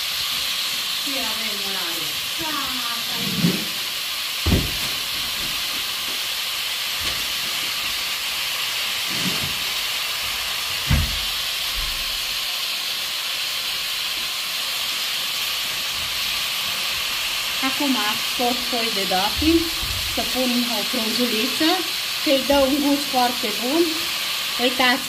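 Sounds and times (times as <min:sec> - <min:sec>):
vegetables sizzling in oil: 0:00.0 - 0:25.0
dull thump: 0:04.4 - 0:04.9.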